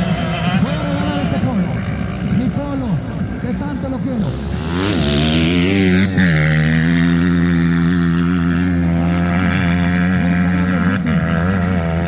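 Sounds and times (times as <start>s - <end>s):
faint distant motorcycle engines: 0.0s - 12.0s
motorcycle engine at high revs: 0.0s - 12.0s.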